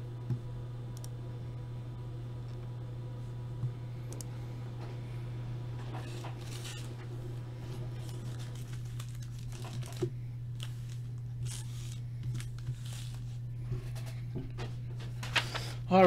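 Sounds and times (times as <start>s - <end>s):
steady low hum: 0.0s - 16.0s
paper rustling and crinkling: 5.9s - 7.0s, 7.6s - 14.1s.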